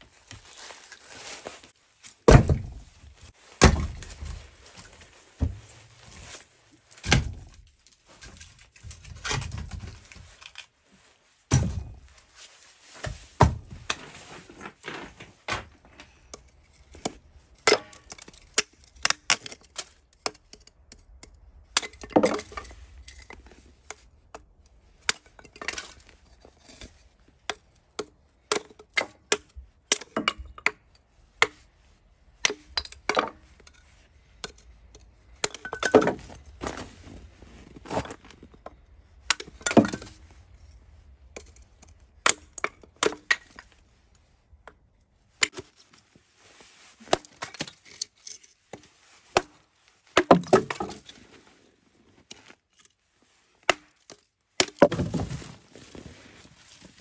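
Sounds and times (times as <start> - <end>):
wood splitting cracks: 2.2 - 2.8, 3.6 - 4.4, 7.0 - 10.6, 11.5 - 12.0, 16.4 - 23.4, 41.3 - 43.7, 50.2 - 51.1, 53.6 - 55.4.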